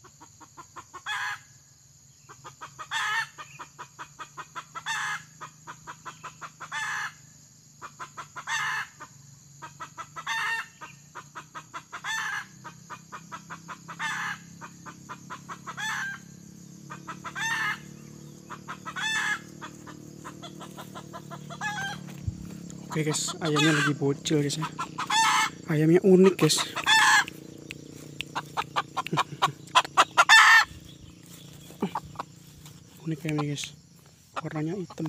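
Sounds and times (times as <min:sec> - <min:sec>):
rapid soft clucks: 0:18.4 - 0:30.7, 0:31.5 - 0:35.0.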